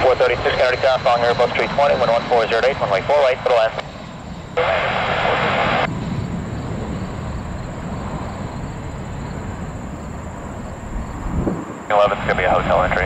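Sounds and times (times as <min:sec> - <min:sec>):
radio hiss: 0:00.0 - 0:03.9, 0:04.6 - 0:05.9, 0:11.9 - 0:13.0
jet engines rumbling: 0:00.0 - 0:13.0.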